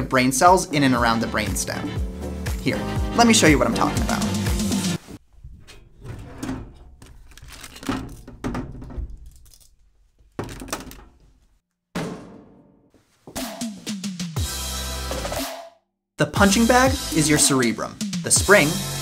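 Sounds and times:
office cabinet thunks and knocks: 7.9s - 9.2s.

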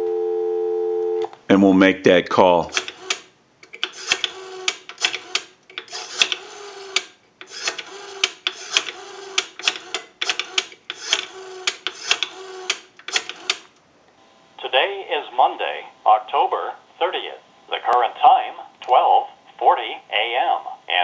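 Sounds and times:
rotary dial whirring and clicking: 2.7s - 13.7s.

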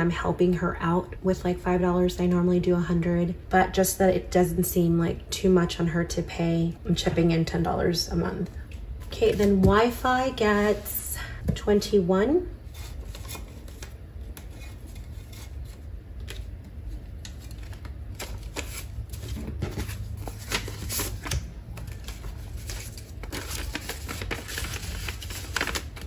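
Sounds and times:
banknotes rustling: 12.7s - 26.0s
envelope crinkling: 12.9s - 26.0s.

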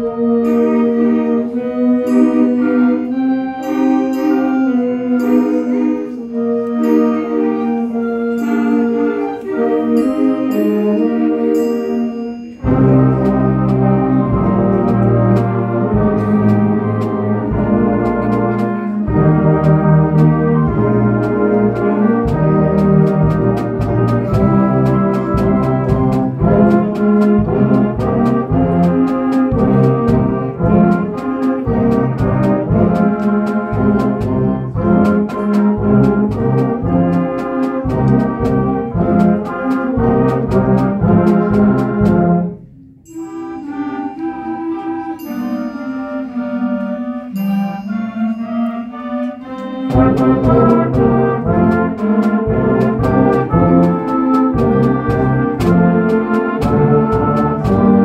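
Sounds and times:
light high percussion strikes: 3.6s - 58.0s
concert band playing: 12.6s - 42.6s, 43.2s - 58.0s.

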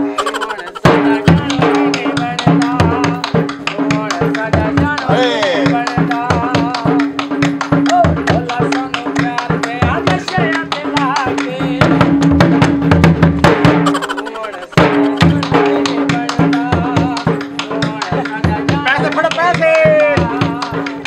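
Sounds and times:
lively dance music: 0.0s - 21.0s.

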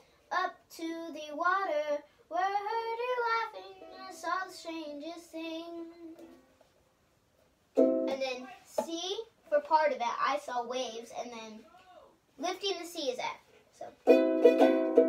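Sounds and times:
girl singing unaccompanied: 0.0s - 6.5s, 7.8s - 11.8s.

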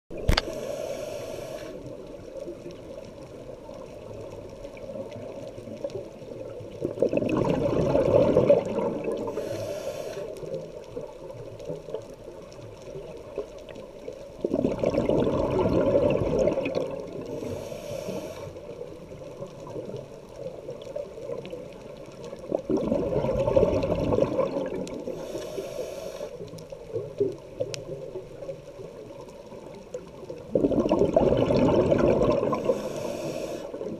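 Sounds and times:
diver breathing through regulator: 0.3s - 1.8s, 9.2s - 10.6s, 17.3s - 18.7s, 25.1s - 26.4s, 32.4s - 33.9s
regulator hiss: 0.4s - 1.9s, 9.3s - 10.6s, 17.3s - 18.8s, 25.1s - 26.5s, 32.6s - 33.9s
exhaled bubbles bursting: 6.4s - 9.5s, 14.4s - 17.4s, 22.3s - 25.2s, 30.3s - 33.2s.

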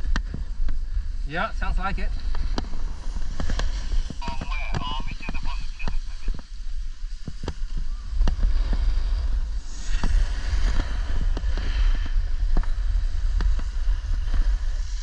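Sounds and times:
wind buffeting microphone: 0.0s - 15.0s
snowboard hissing on snow: 6.5s - 15.0s.

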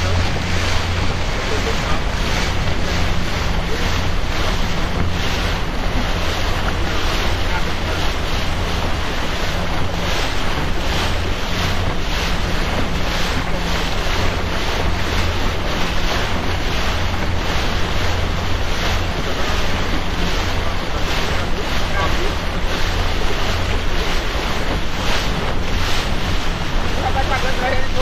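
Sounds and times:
steady low hum: 0.0s - 28.0s
water splashing along hull: 0.0s - 28.0s
wind buffeting microphone: 0.0s - 28.0s.

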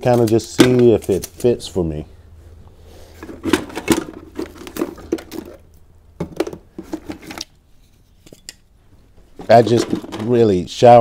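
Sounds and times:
metal and plastic parts clattering: 0.0s - 1.5s, 3.1s - 8.6s, 9.3s - 10.5s.

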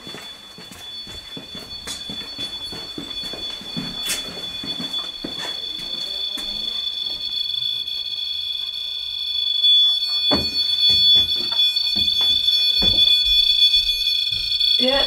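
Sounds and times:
footsteps on wooden stairs: 0.0s - 7.2s, 10.2s - 14.8s
high-pitched electronic alarm tone: 0.0s - 15.0s.

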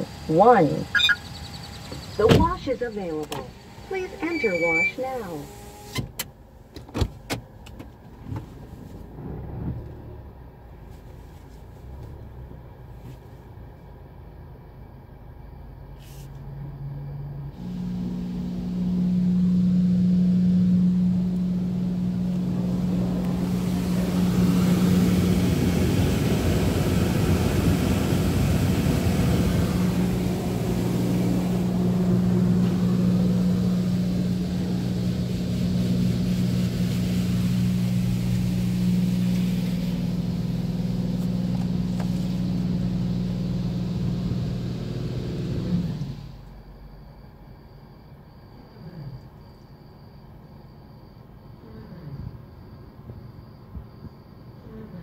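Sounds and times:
car wash machine hum: 0.0s - 6.0s, 17.5s - 46.6s
water spray hitting car: 22.2s - 42.7s.

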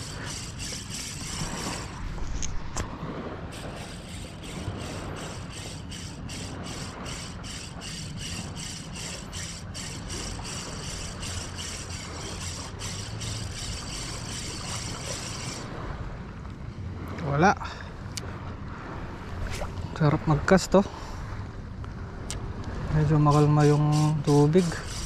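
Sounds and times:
fishing reel ticking: 0.0s - 2.0s, 3.5s - 15.7s, 23.3s - 25.0s.

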